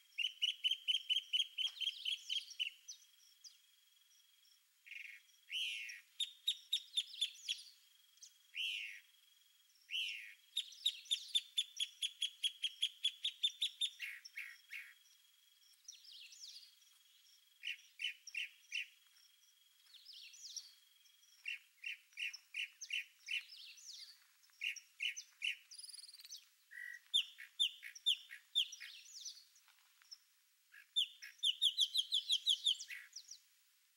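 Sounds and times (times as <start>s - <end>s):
birds chirping and whistling: 0.2s - 3.0s, 4.9s - 7.7s, 9.9s - 15.0s, 21.4s - 29.4s, 31.0s - 33.3s.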